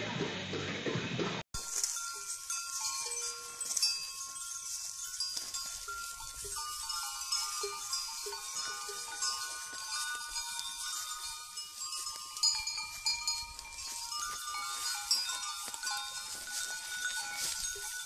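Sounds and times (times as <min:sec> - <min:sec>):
music: 0:00.0 - 0:01.4
goat bells ringing: 0:01.6 - 0:18.0.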